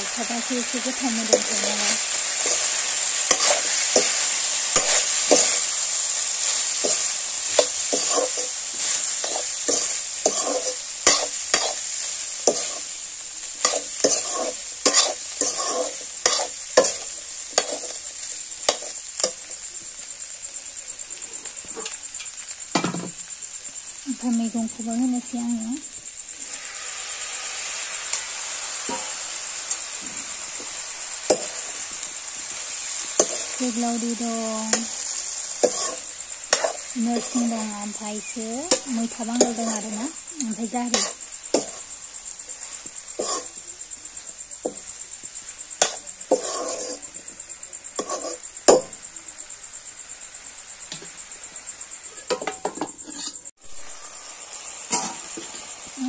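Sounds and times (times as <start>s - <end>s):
greens sizzling in oil: 0.0s - 56.0s
metal spatula scraping a wok: 0.2s - 19.6s, 26.3s - 43.6s, 45.8s - 47.3s, 47.9s - 48.8s, 52.2s - 55.7s.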